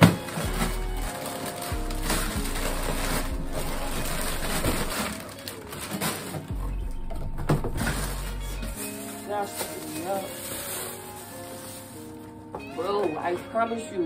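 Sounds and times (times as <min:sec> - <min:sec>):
cardboard rustling: 0:00.0 - 0:06.7, 0:07.4 - 0:13.4
plastic snack bags crinkling: 0:00.0 - 0:06.8, 0:07.8 - 0:13.5
background music: 0:00.0 - 0:14.0.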